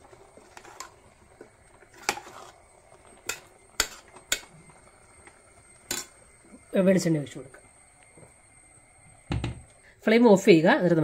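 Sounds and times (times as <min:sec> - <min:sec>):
spoon stirring thick mixture: 0:00.2 - 0:02.7.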